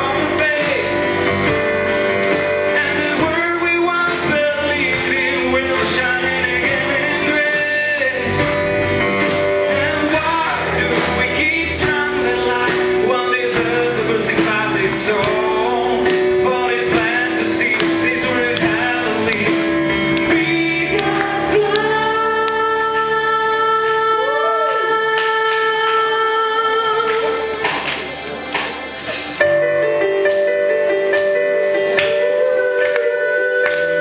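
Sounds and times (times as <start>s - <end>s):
acoustic guitars and band: 0.0s - 34.0s
group of singers: 9.7s - 28.1s, 32.0s - 34.0s.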